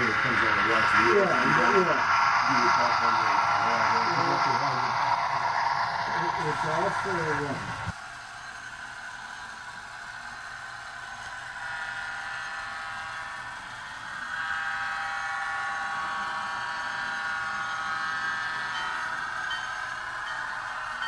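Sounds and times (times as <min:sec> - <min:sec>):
thin model engine hum: 0:00.0 - 0:21.0.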